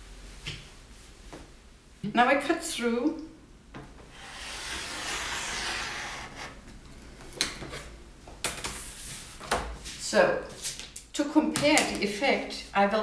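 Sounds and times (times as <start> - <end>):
rotary cutter slicing fabric: 4.2 - 6.5.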